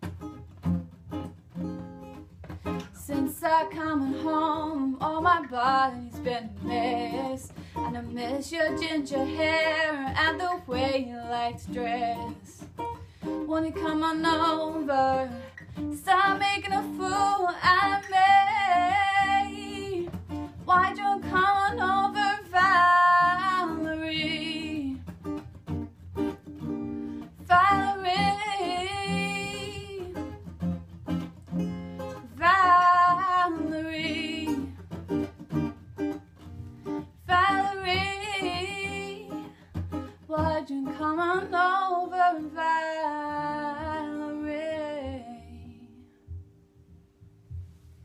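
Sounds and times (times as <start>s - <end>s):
acoustic guitar: 0.0s - 48.0s
woman singing: 2.8s - 25.1s, 27.2s - 30.5s, 32.1s - 35.1s, 37.0s - 46.2s.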